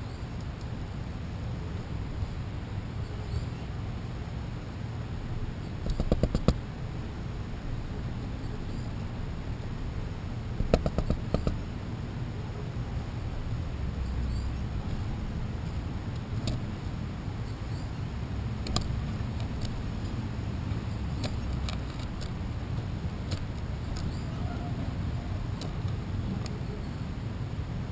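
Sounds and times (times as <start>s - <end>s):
low outdoor rumble: 0.0s - 27.9s
squirrel claws tapping on plastic: 5.8s - 6.6s, 10.6s - 11.6s.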